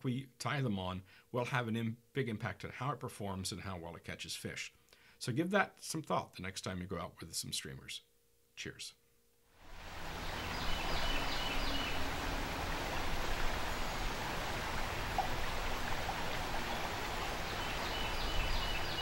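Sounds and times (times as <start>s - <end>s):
river water rushing over rocks: 9.7s - 19.0s.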